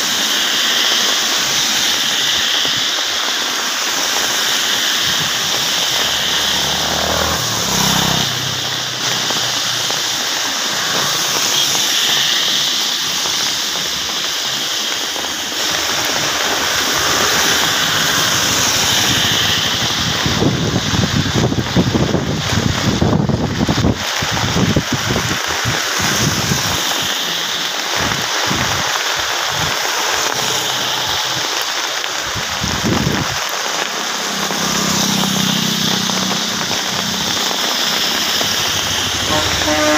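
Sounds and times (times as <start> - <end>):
heavy rain hiss: 0.0 - 39.9
vehicles swishing on wet road: 0.0 - 39.9
car passing: 4.2 - 12.7, 15.6 - 21.6, 26.6 - 39.9.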